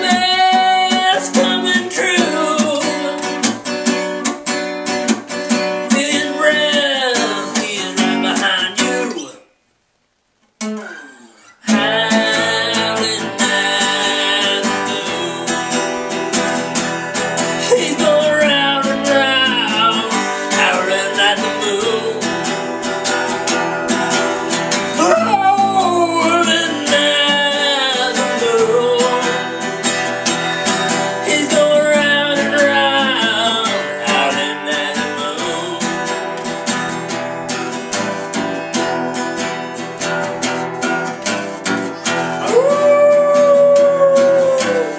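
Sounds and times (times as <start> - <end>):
man singing: 0.0 - 3.6, 5.6 - 9.4, 11.6 - 22.6, 24.7 - 36.4, 41.9 - 44.9
acoustic guitar strumming: 0.0 - 9.6, 10.6 - 44.9.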